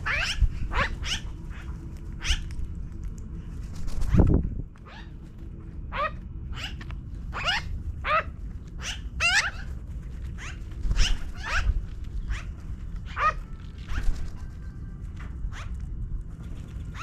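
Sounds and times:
magpies calling harshly: 0.0s - 2.5s, 4.8s - 5.2s, 5.9s - 14.4s.

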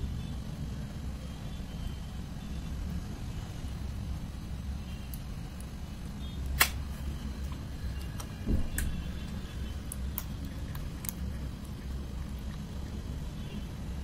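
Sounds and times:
slime sticky clicks and pops: 6.6s - 6.8s.

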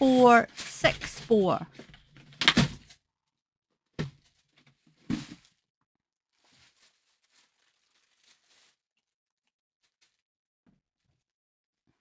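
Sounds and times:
plastic packaging crinkling: 6.4s - 8.8s.

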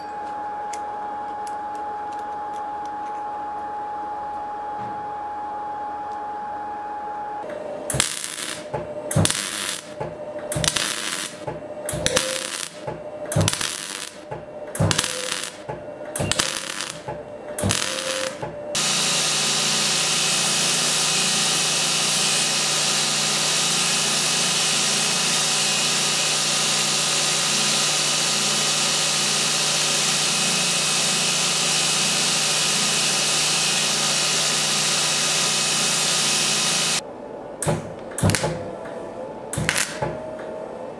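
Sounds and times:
belt grinder grinding steel: 8.0s - 12.8s, 13.4s - 14.2s, 14.8s - 15.6s, 16.2s - 17.0s, 17.6s - 37.0s.

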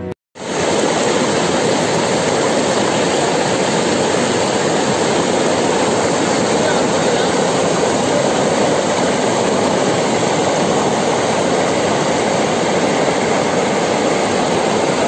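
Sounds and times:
water rushing over rock: 0.4s - 15.0s.

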